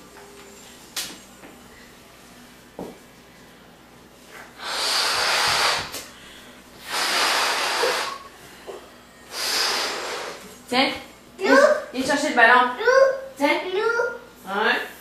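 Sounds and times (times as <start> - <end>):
person blowing up a balloon: 4.6 - 6.1, 6.8 - 8.4, 9.3 - 10.6.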